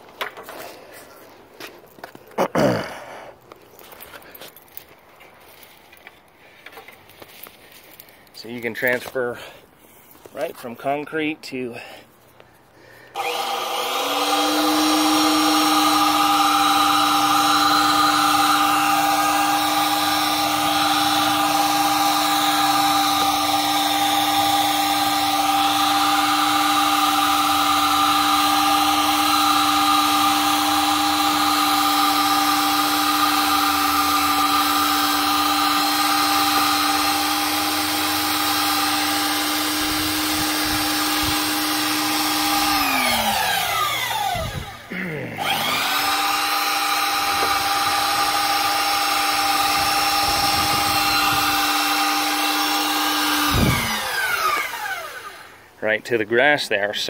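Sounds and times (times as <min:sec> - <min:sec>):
drill motor whining: 0:13.0 - 0:55.7.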